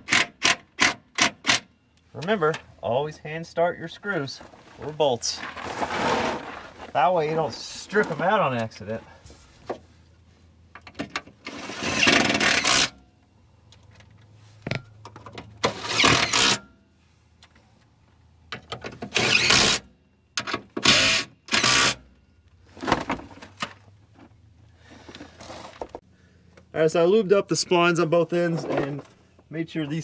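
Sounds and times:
impact wrench bursts: 15.7s - 16.6s, 19.1s - 19.9s, 20.8s - 22.1s.

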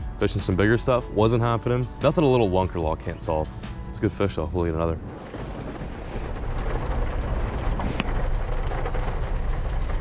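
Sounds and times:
heavy rain: 5.0s - 10.0s.

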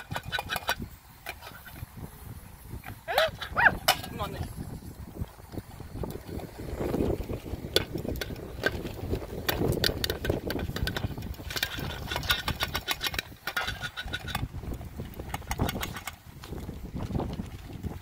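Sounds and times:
popcorn popping in metal pot: 0.0s - 1.8s, 6.0s - 16.6s
wind rumble on microphone: 0.0s - 18.0s.

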